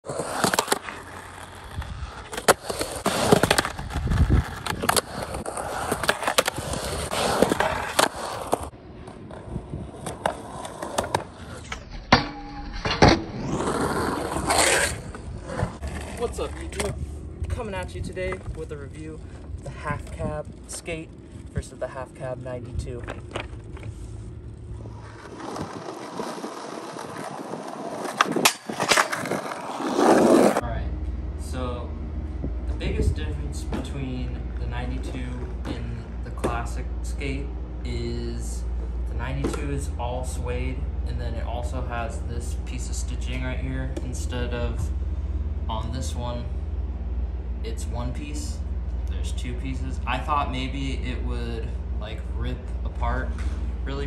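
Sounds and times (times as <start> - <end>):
skateboard rolling on concrete: 0.0 - 12.0, 12.9 - 30.6, 32.2 - 54.0
skateboard grinding metal: 0.0 - 17.3, 23.1 - 30.6.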